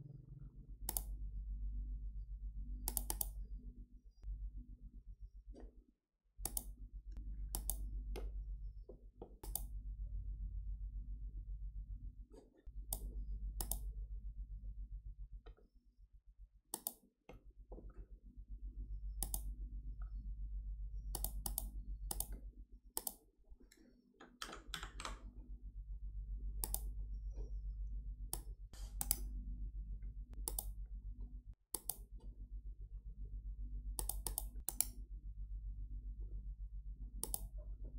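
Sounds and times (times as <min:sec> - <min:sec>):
steady low hum: 0:00.0 - 0:05.8, 0:06.4 - 0:15.5, 0:17.5 - 0:24.0, 0:24.6 - 0:37.9
computer mouse clicks: 0:00.9 - 0:01.2, 0:02.8 - 0:03.4, 0:06.4 - 0:06.8, 0:07.5 - 0:08.3, 0:09.2 - 0:09.7, 0:12.3 - 0:13.9, 0:16.7 - 0:17.1, 0:19.1 - 0:19.5, 0:21.1 - 0:22.4, 0:23.0 - 0:25.3, 0:26.6 - 0:27.0, 0:28.3 - 0:29.3, 0:30.3 - 0:30.8, 0:31.7 - 0:32.2, 0:34.0 - 0:35.0, 0:37.2 - 0:37.5
keyboard typing: 0:21.1 - 0:22.4, 0:24.2 - 0:25.3, 0:30.4 - 0:30.8.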